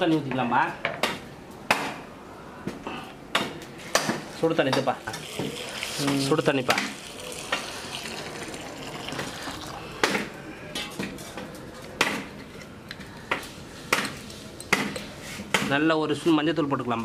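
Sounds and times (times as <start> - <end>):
hot water pouring: 4.8 - 10.4.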